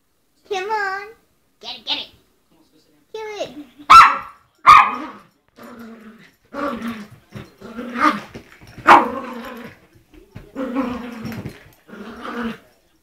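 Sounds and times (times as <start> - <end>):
dog barking: 3.9 - 5.2, 8.8 - 9.3
dog growling: 4.8 - 9.8, 10.4 - 12.7.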